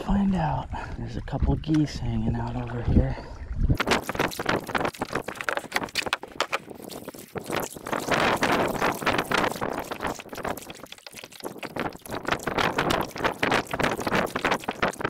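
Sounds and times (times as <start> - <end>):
kayak paddle strokes in water: 3.8 - 15.0
water dripping off paddle: 3.8 - 15.0.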